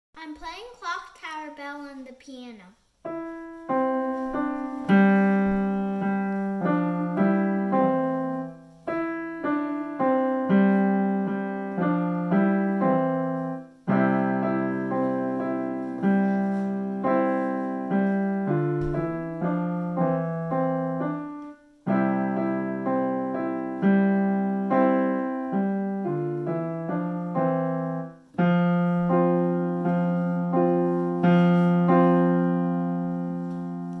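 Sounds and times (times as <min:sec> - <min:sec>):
digital piano melody: 0:03.0 - 0:34.0.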